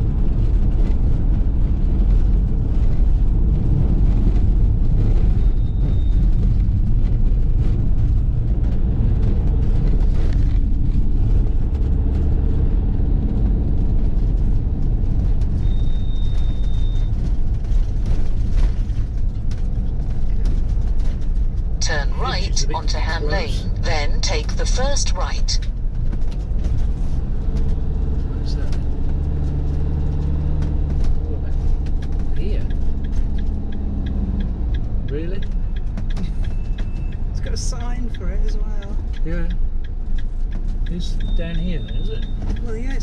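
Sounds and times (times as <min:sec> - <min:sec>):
engine and road noise: 0:00.0 - 0:43.0
faint high beeps: 0:41.1 - 0:42.4.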